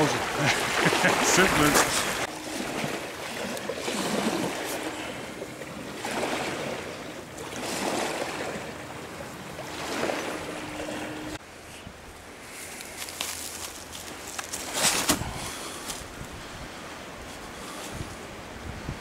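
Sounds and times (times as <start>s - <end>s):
small waves washing onto stony shore: 0.0s - 11.4s.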